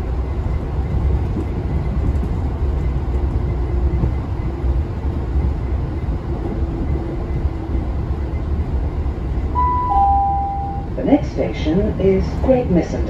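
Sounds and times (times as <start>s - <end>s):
train rumble at speed: 0.0s - 13.0s
two-note falling chime: 9.6s - 10.9s.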